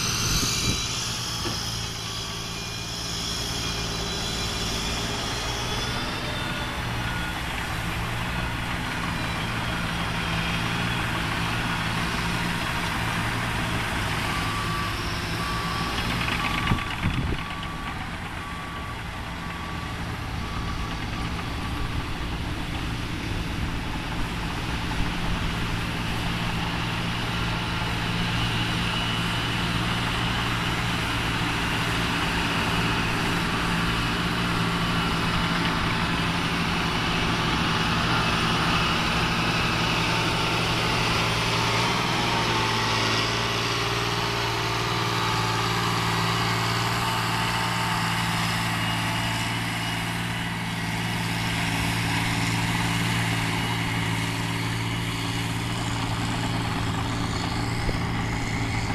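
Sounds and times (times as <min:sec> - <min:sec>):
dozer diesel engine running: 0:00.0 - 0:58.9.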